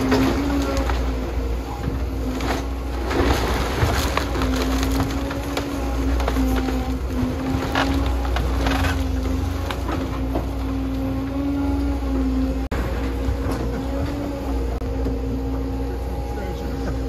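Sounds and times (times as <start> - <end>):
excavator engine droning: 0.0 - 17.0
wooden framing cracking: 2.1 - 11.1.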